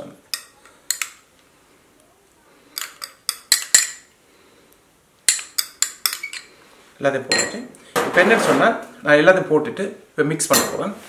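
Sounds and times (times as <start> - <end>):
glassware clinking: 2.8 - 4.1, 5.3 - 6.6, 7.3 - 7.7.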